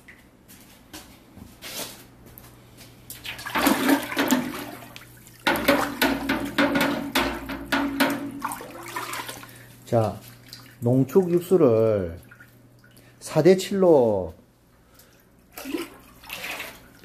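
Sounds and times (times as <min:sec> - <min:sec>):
ladle stirring sloshing liquid: 0:03.1 - 0:13.2, 0:15.0 - 0:17.0.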